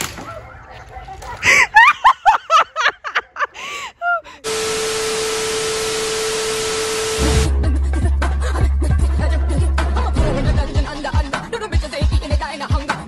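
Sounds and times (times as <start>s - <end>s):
static hiss: 4.4s - 7.5s
steady tone: 4.4s - 7.5s.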